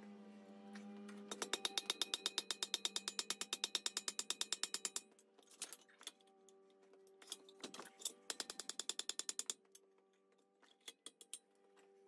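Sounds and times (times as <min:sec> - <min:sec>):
hammer striking steel on anvil: 0:01.3 - 0:05.2.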